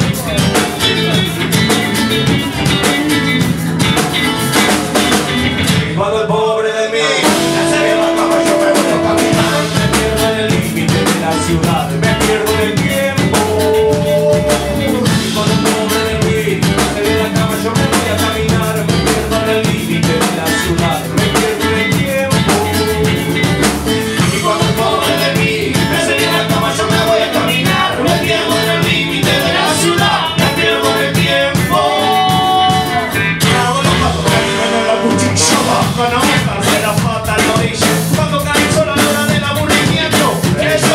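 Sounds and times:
ska reggae band playing: 0.0 - 40.9
horn section holding notes: 7.1 - 10.2, 33.9 - 35.9.

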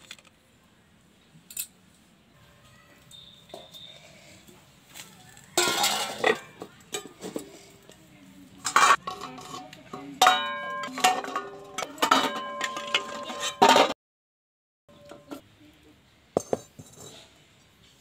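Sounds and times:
steel dishes ringing: 5.6 - 7.1, 10.2 - 14.0
spatula scraping steel pan: 10.7 - 13.9.

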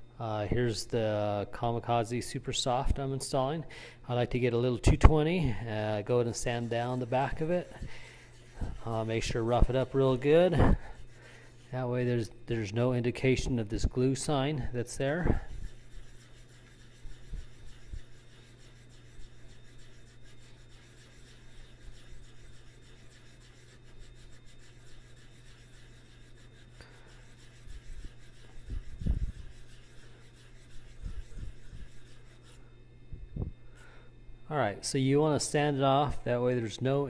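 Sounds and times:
cue tip scratching on sandpaper: 5.1 - 32.8.

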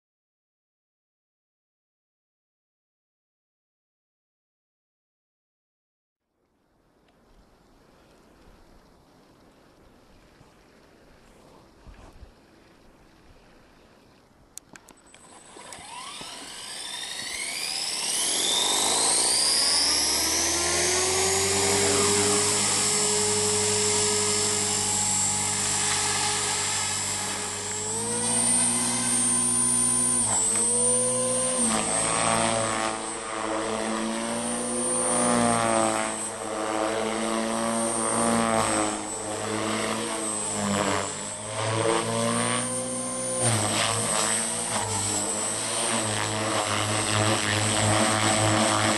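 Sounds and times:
rc helicopter rotor whine: 15.0 - 48.9.

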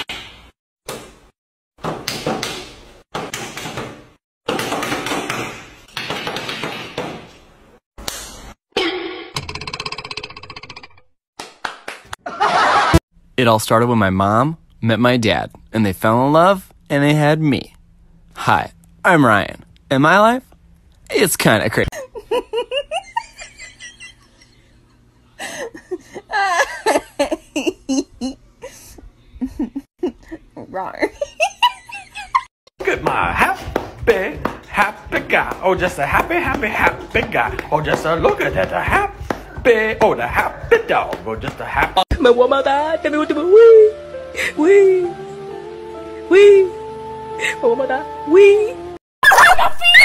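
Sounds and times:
person giggling and laughing: 21.9 - 24.6, 25.4 - 28.8, 29.4 - 32.5.

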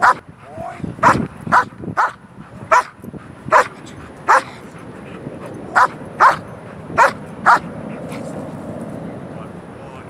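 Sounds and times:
dog barking: 0.0 - 0.2, 1.0 - 2.9, 3.5 - 4.6, 5.8 - 6.4, 7.0 - 7.7.

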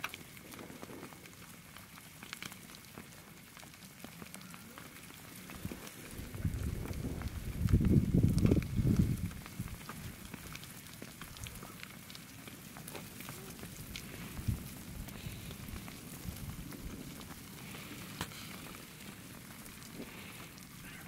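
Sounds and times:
lava crust crackling and ticking: 0.0 - 21.0
low rumble: 6.0 - 9.4.

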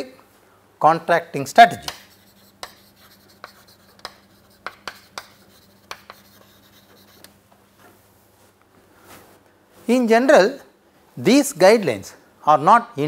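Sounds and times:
chalk tapping and scratching on board: 1.7 - 7.4.

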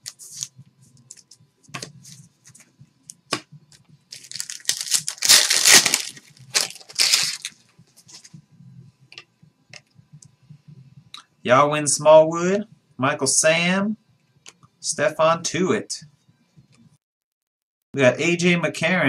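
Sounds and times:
plastic packaging crinkling and tearing: 4.1 - 7.6.

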